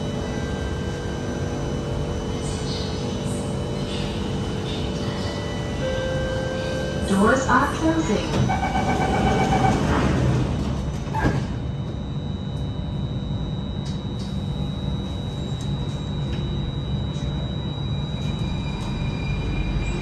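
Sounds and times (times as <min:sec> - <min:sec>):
train interior rumble: 0:00.0 - 0:20.0.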